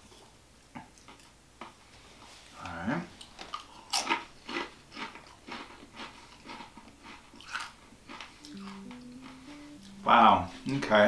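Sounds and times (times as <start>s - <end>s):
tortilla chip crunching: 3.2s - 8.8s.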